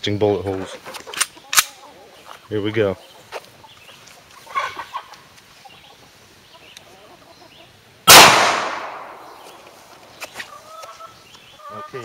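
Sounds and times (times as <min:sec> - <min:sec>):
gunshot with echo: 0:08.1 - 0:09.4.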